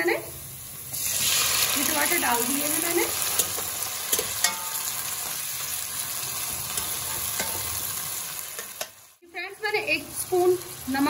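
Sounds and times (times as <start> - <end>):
tomatoes sizzling in hot oil: 0.0 - 11.0
utensil clicking against pan: 8.5 - 9.0.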